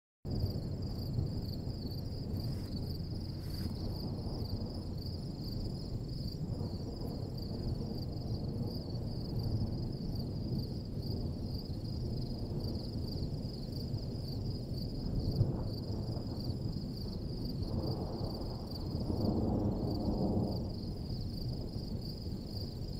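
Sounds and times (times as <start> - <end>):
wind rumbling on microphone: 0.3 - 22.9
insects chirring: 0.4 - 22.9.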